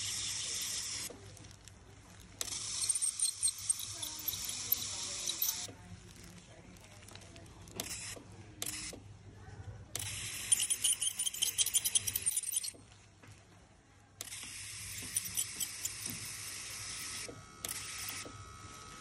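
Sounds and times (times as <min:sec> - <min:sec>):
ultrasonic dental scaler hissing: 0:02.4 - 0:05.7, 0:14.2 - 0:18.3.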